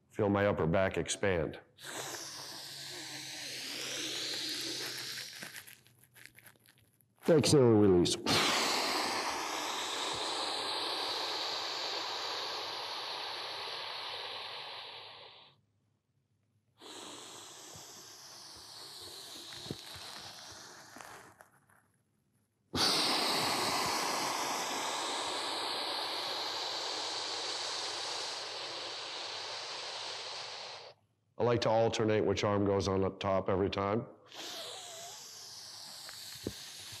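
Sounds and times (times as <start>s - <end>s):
man breathing deeply: 8.3s - 15.5s, 16.8s - 21.3s, 22.8s - 31.0s.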